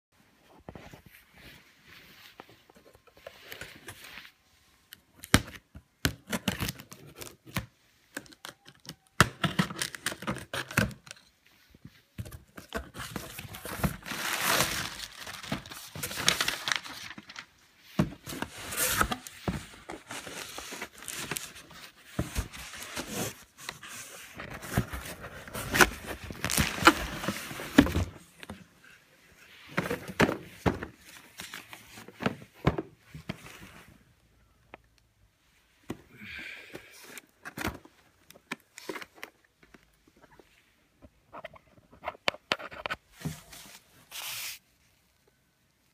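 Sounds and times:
cardboard and paper rustling: 9.4s - 34.0s, 41.4s - 44.6s.

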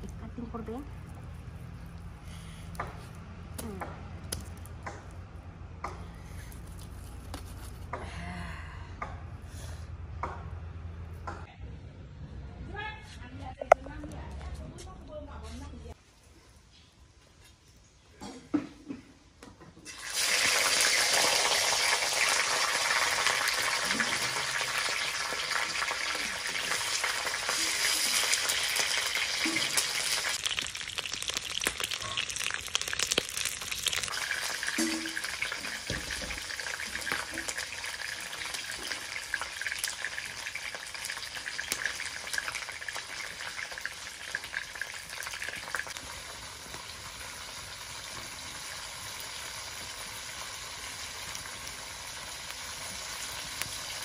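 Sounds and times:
fish sizzling in hot oil: 19.9s - 54.0s.

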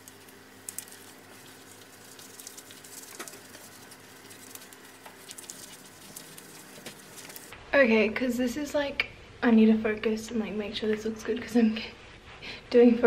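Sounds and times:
mitt rubbing over skin: 0.8s - 7.5s.

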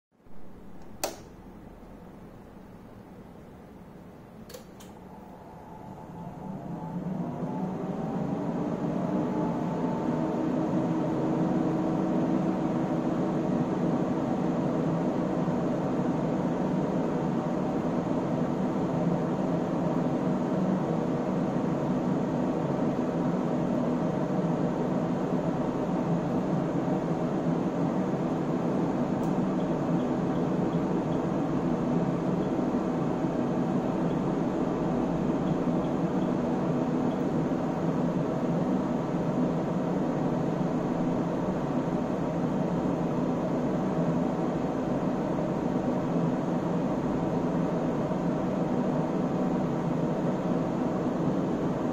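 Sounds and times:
cooling fans whooshing: 0.2s - 51.9s
faint click: 4.4s - 5.0s.

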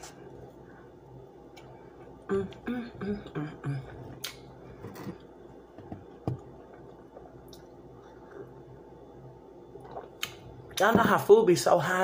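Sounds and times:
sipping juice: 0.0s - 10.8s
sharp mouth clicks: 4.2s - 4.4s.

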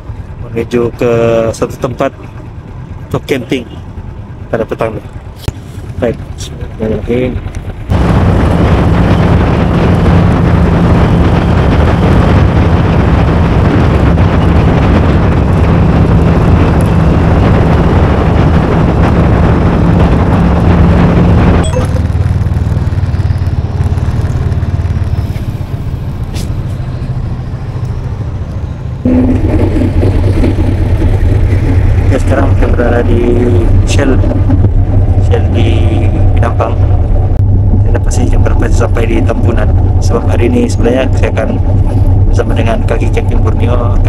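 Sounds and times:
motorcycle engine running: 0.0s - 44.0s
wind and road noise: 0.0s - 44.0s.

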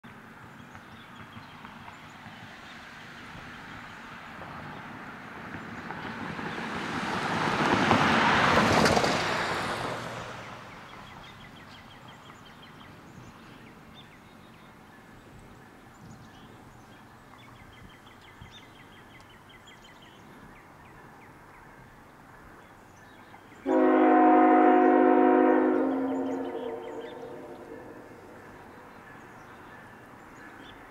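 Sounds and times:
locomotive air horn: 23.6s - 28.4s.

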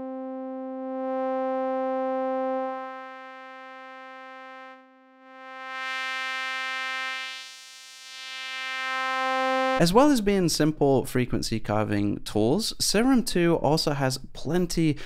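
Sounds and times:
filtered sawtooth synth note: 0.0s - 9.8s.

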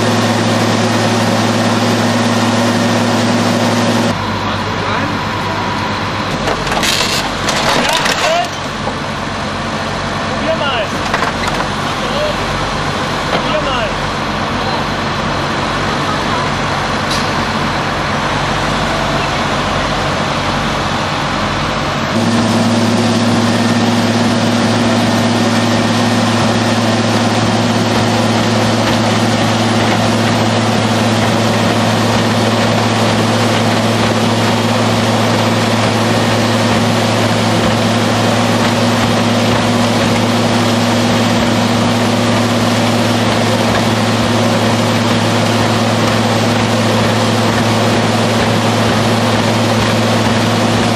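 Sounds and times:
diesel engine running: 0.0s - 50.9s.

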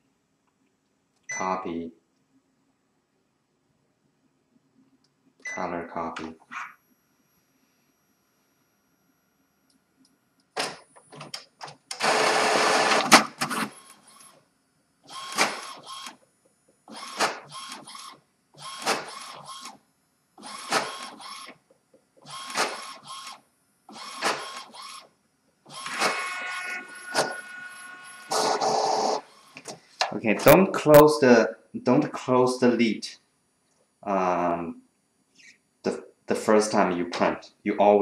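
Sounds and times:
printer feed motor running: 11.9s - 13.8s, 25.7s - 29.5s
printer pulling paper in: 15.2s - 16.2s, 20.4s - 21.6s, 23.9s - 25.0s, 25.7s - 29.2s.

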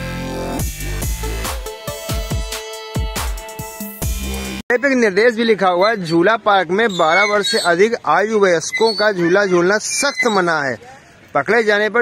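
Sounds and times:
electronic music with heavy bass: 0.0s - 4.6s.

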